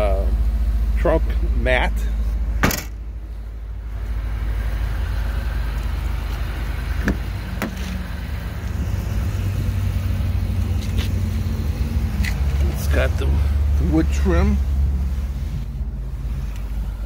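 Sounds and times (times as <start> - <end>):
car engine idling: 0.0 - 17.0
car door latch clicks: 2.6 - 3.0.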